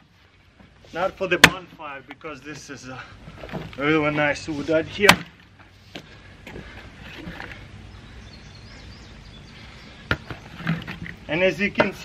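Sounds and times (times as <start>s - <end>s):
maul chopping wood: 1.4s - 1.7s, 5.0s - 5.4s.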